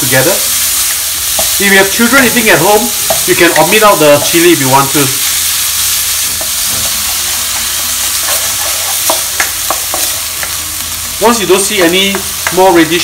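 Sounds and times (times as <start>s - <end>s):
meat sizzling in wok: 0.0s - 13.0s
wooden spatula scraping wok: 0.1s - 10.3s.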